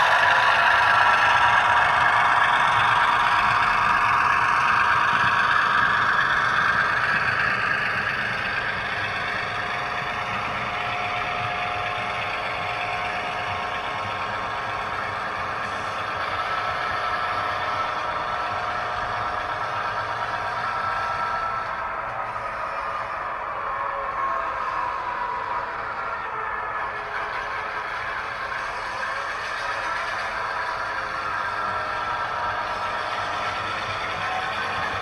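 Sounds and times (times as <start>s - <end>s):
diesel locomotive engine from small speaker: 0.0s - 35.0s
model freight cars rolling on track: 0.0s - 35.0s.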